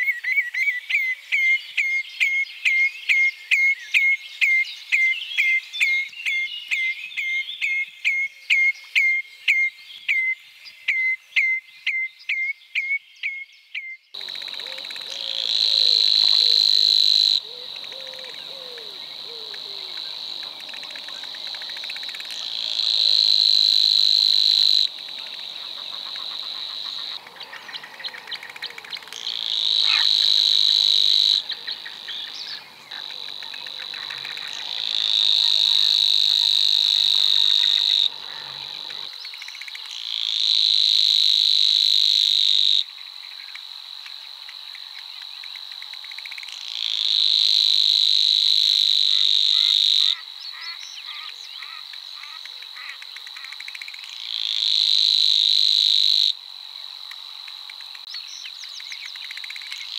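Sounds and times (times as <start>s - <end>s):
warbler reeling trills: 14.2s - 39.6s.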